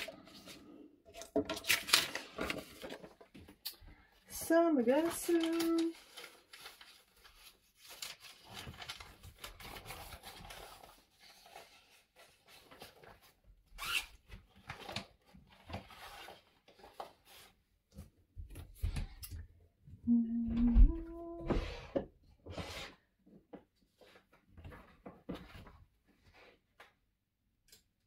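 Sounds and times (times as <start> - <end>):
blade scraping through paper: 4.9 - 13.1.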